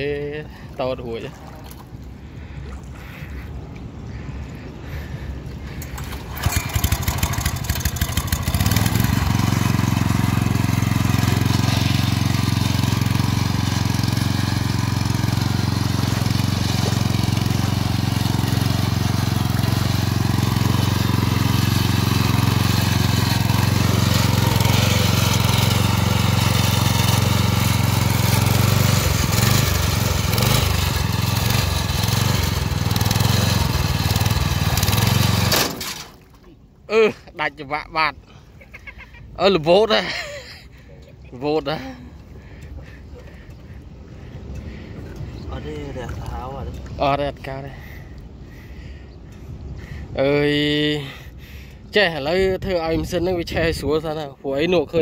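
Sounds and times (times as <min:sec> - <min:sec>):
small boat engine running: 0:00.2 - 0:36.3.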